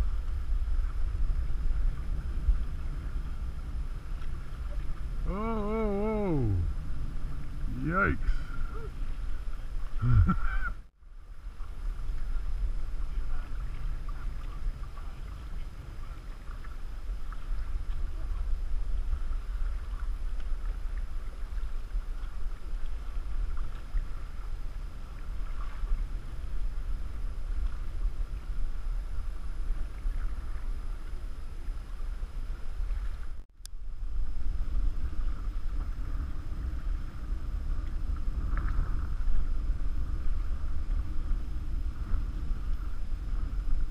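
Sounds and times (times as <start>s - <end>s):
water lapping against metal canoe: 0.0s - 33.4s
wind rumbling on microphone: 0.0s - 43.9s.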